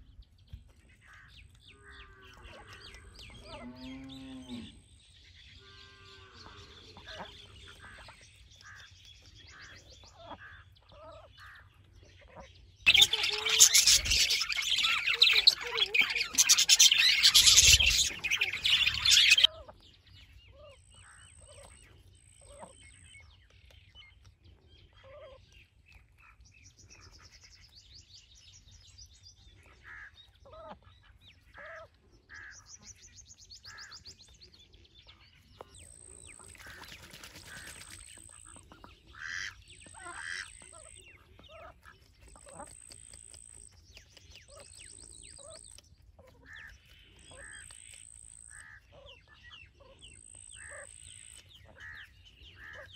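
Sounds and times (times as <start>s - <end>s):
small birds chirping and trilling: 0.0s - 52.9s
ducks quacking: 5.8s - 8.9s, 12.3s - 19.6s, 36.2s - 43.0s, 46.2s - 52.9s
budgerigars chattering: 12.9s - 19.5s, 33.6s - 34.2s, 35.6s - 52.9s.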